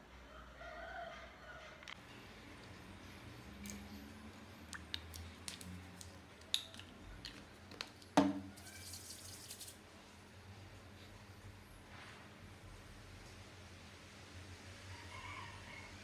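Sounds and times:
palms rubbing together: 8.8s - 9.7s.

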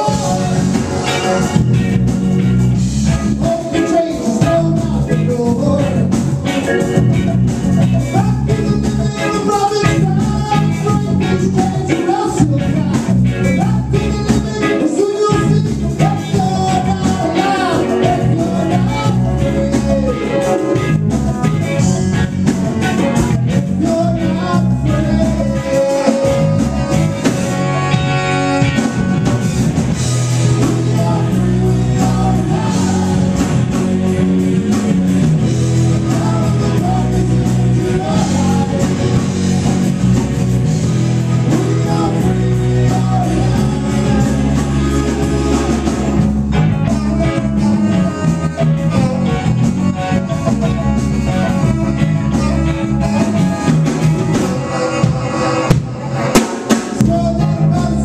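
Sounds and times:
live reggae rock band: 0.0s - 58.0s
saxophone melody: 16.4s - 57.4s.

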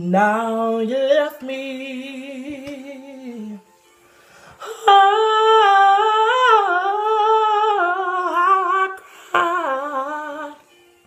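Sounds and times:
man singing unaccompanied: 0.0s - 3.7s, 4.6s - 10.7s
breath: 4.0s - 4.6s, 9.0s - 9.4s.

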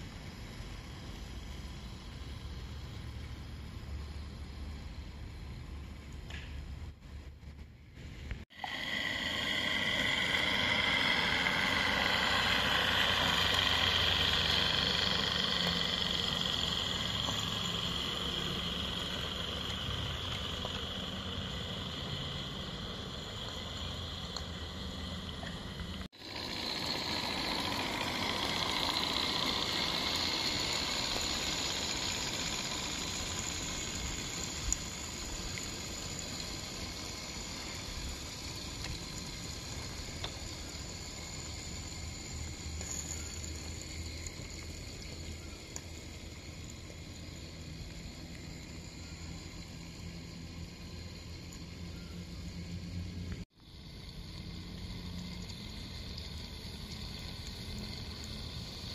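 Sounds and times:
rolling wheel rumble: 0.0s - 58.9s
steam locomotive hissing: 7.9s - 44.6s.

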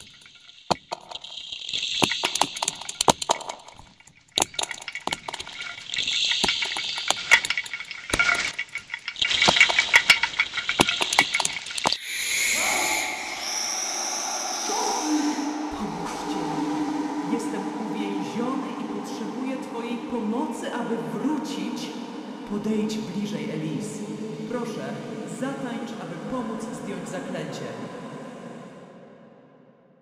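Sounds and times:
sharp electronic clicks and crackles: 0.0s - 12.0s
hissing watery texture: 0.0s - 21.0s
steady sustained electronic tones: 0.0s - 29.4s.

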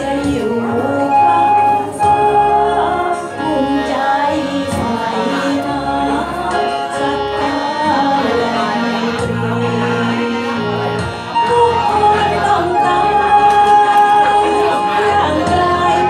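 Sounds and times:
karaoke backing track: 0.0s - 16.0s
person singing into microphone: 0.0s - 16.0s.

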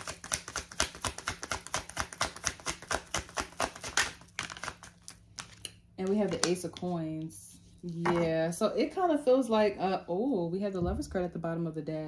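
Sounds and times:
cards being shuffled: 0.0s - 7.3s.

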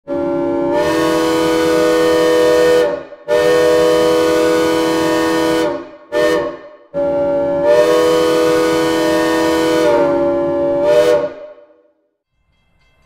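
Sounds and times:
steam locomotive whistle chord: 0.1s - 13.0s.

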